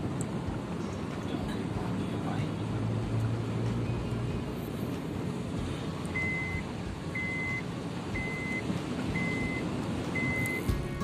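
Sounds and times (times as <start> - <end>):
car driving through floodwater: 0.0 - 11.0
high electronic beep: 6.2 - 10.8.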